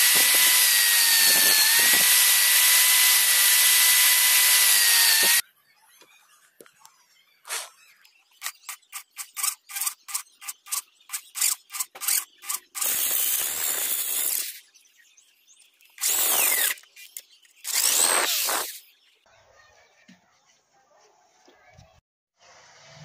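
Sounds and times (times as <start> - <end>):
electric drill boring through steel: 0.0 - 5.4, 12.8 - 14.6, 16.0 - 16.8, 17.7 - 18.7.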